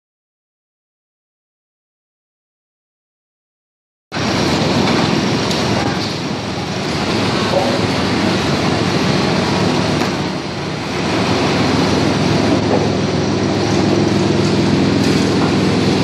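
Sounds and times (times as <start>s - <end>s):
motor hum: 4.2s - 16.0s
veneer lathe running: 4.2s - 16.0s.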